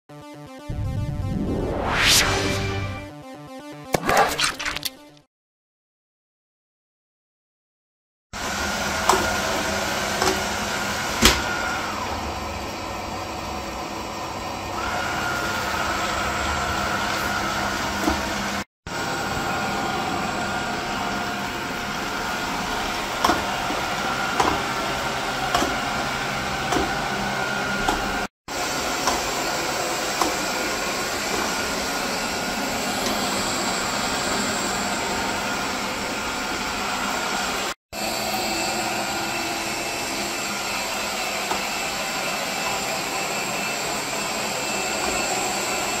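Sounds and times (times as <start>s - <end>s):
high whine: 0.3s - 3.7s
robot vacuum whirring: 8.4s - 46.0s.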